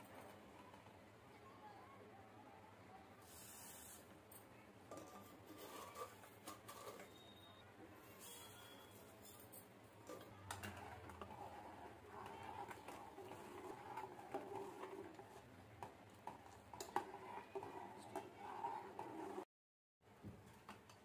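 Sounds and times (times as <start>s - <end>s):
metal spoon stirring in pot: 4.9s - 7.3s, 8.0s - 19.4s.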